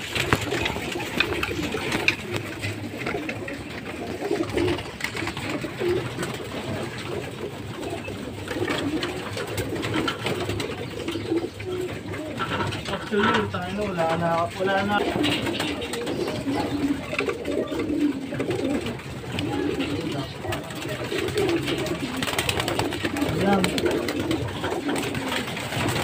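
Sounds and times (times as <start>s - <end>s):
wing flaps: 0.0s - 13.5s, 14.4s - 26.0s
pigeons cooing: 0.0s - 26.0s.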